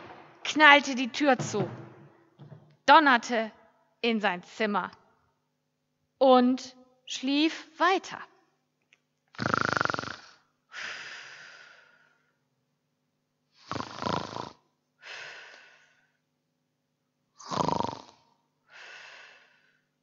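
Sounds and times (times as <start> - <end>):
person snoring: 9.4 - 10.4, 13.6 - 14.6, 17.4 - 18.2
soft breath out: 15.0 - 16.2, 18.7 - 19.9.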